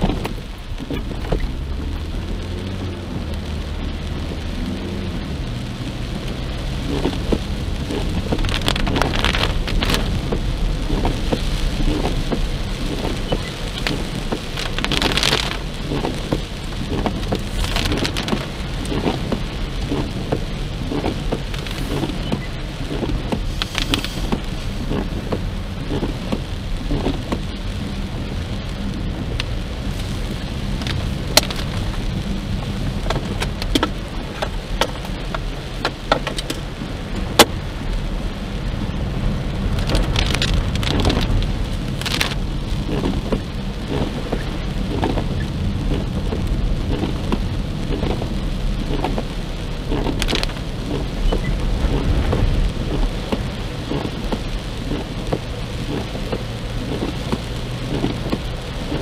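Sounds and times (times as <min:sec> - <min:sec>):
heavy rain on car windshield: 0:00.0 - 0:59.0
sharp raindrop hits: 0:00.0 - 0:59.0.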